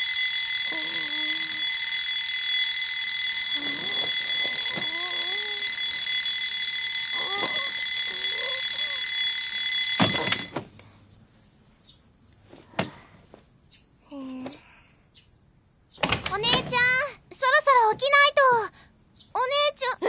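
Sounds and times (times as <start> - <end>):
alarm clock ringing: 0.0 - 10.6
knock switching off alarm: 0.0 - 10.6
sleepy groans: 3.6 - 5.8.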